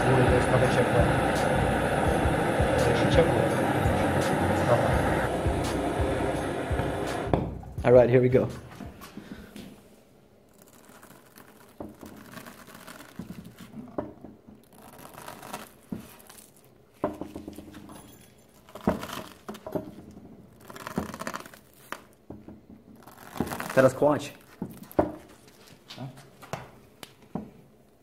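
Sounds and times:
plastic mesh crinkling and crackling: 0:10.5 - 0:14.0, 0:14.6 - 0:17.0, 0:18.2 - 0:22.2, 0:22.9 - 0:26.0.

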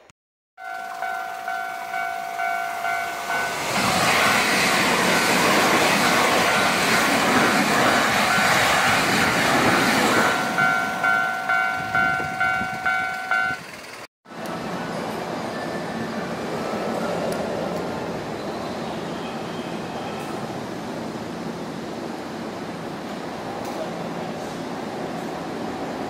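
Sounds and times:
crossing warning bell: 0:00.6 - 0:14.1
electric train passing: 0:00.6 - 0:26.0.

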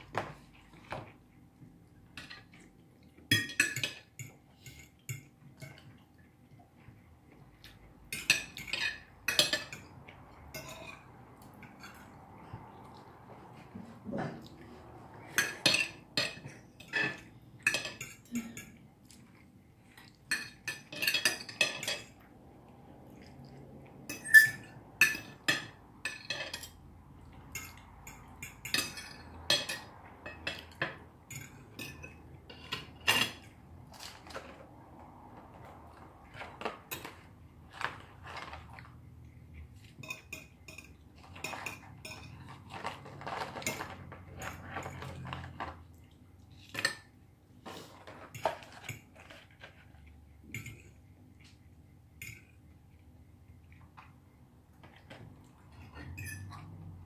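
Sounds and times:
cutlery clinking on plates: 0:02.1 - 0:06.0, 0:07.8 - 0:13.0, 0:15.2 - 0:19.4, 0:20.0 - 0:22.2, 0:24.0 - 0:34.6, 0:35.9 - 0:38.9, 0:39.7 - 0:45.8, 0:47.9 - 0:51.0, 0:52.2 - 0:52.6, 0:54.8 - 0:56.9.

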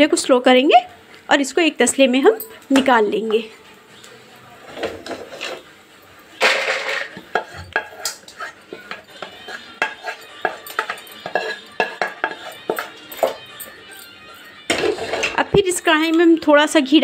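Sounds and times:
spatula scraping pan: 0:04.6 - 0:15.5.

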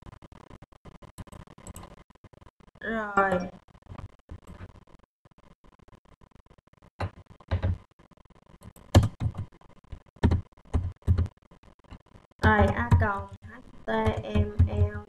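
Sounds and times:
keyboard keys thumping: 0:07.0 - 0:07.8, 0:08.9 - 0:09.4.

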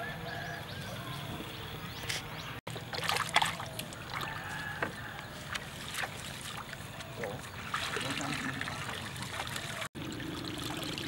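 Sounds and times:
water splashing and sloshing: 0:02.7 - 0:11.0.

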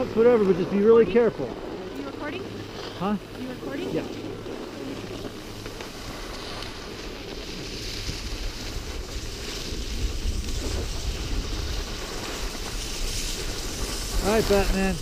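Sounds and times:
skis sliding on packed snow: 0:00.0 - 0:15.0
wind buffeting microphone: 0:00.0 - 0:15.0.

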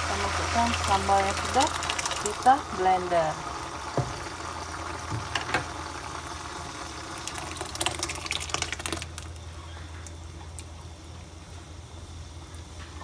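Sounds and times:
puree pouring and splashing into oil: 0:00.0 - 0:02.8, 0:03.5 - 0:10.9.

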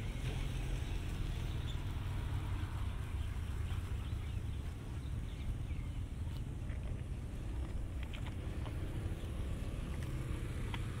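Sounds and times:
steady low rumble: 0:02.8 - 0:11.0.

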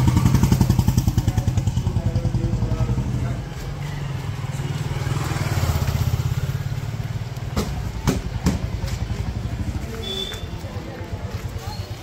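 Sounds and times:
motorcycle passing by: 0:00.0 - 0:12.0
sharp knocks: 0:07.5 - 0:08.7.

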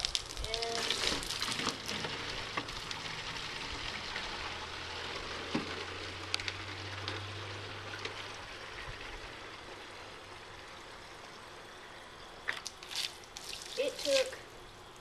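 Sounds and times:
hose water splashing into jug: 0:00.0 - 0:05.7, 0:12.4 - 0:15.0.

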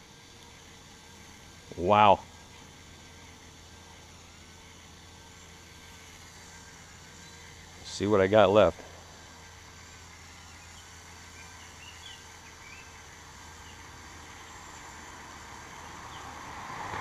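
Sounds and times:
faint steady hum: 0:00.0 - 0:17.0
faint bird chirps: 0:09.7 - 0:16.4.

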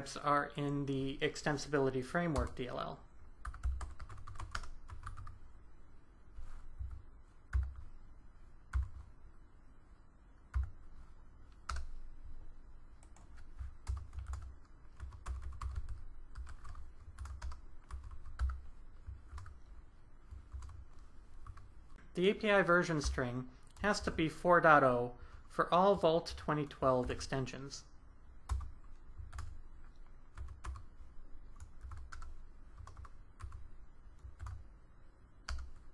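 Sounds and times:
typing on computer keyboard: 0:03.4 - 0:05.4, 0:06.8 - 0:07.9, 0:08.7 - 0:09.1, 0:10.5 - 0:10.8, 0:11.5 - 0:12.0, 0:13.0 - 0:19.6, 0:20.3 - 0:21.7, 0:28.5 - 0:29.6, 0:30.3 - 0:30.9, 0:31.5 - 0:34.6, 0:35.4 - 0:35.9.

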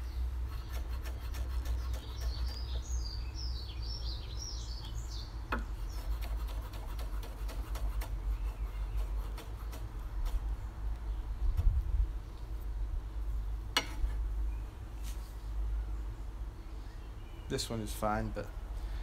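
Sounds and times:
birds chirping: 0:00.0 - 0:11.6.

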